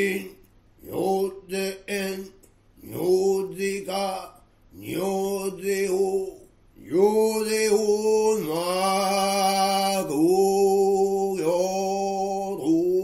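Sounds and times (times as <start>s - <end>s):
person chanting: 0.0s - 13.0s.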